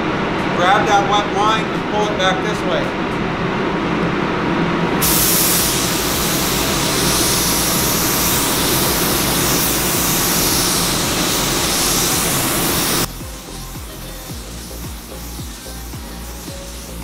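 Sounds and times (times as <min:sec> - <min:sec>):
rush of air: 0:03.5 - 0:13.6
paint spray gun hissing: 0:05.0 - 0:17.0.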